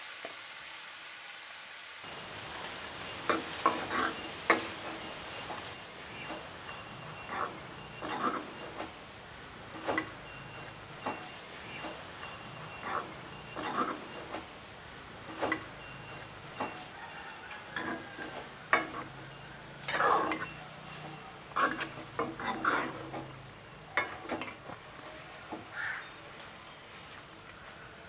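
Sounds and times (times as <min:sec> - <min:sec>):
meat frying: 0:00.0 - 0:06.6
metal spoon clinking on pot: 0:06.2 - 0:08.8, 0:09.8 - 0:14.3, 0:15.3 - 0:25.2.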